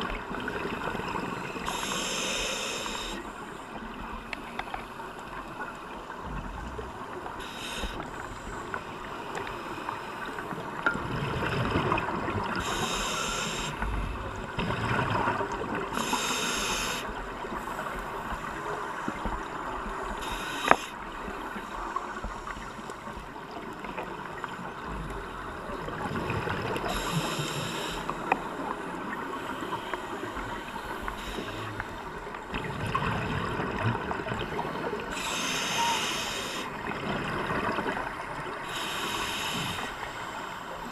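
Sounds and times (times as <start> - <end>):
muffled rush of water: 0.0 - 40.9
hissing bursts of exhaled bubbles: 1.5 - 3.3, 11.2 - 17.1, 38.6 - 40.0.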